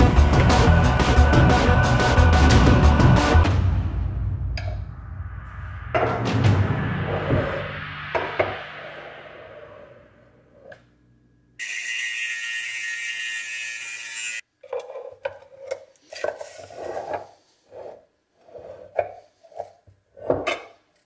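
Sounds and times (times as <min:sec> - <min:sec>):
angle grinder cutting steel: 0:11.6 - 0:14.4.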